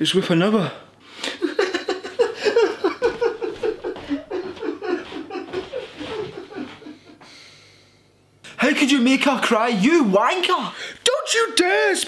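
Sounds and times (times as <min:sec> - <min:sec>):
person sobbing: 0:01.3 - 0:07.2.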